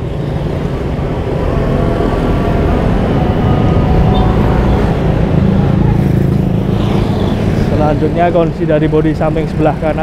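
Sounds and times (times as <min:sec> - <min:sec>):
road traffic rumble: 0:00.0 - 0:10.0.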